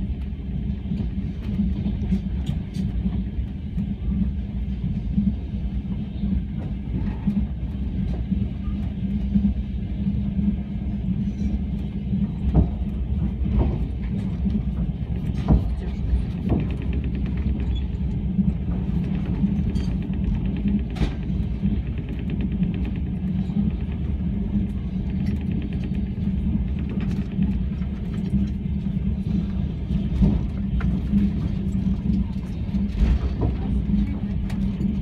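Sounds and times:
low hum: 0.0 - 35.0
train wheels rumbling on rails: 0.0 - 35.0
sharp knocks and clatters: 12.4 - 28.6.

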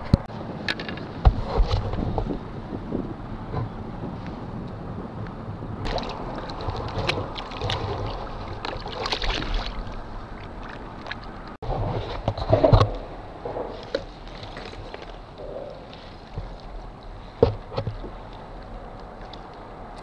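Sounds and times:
water splashing at a kayak: 5.6 - 20.0
fish thrashing at water surface: 5.9 - 12.8.

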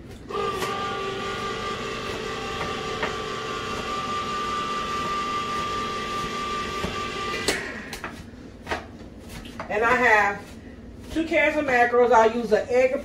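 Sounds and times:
electric can opener motor hum: 0.2 - 8.0.

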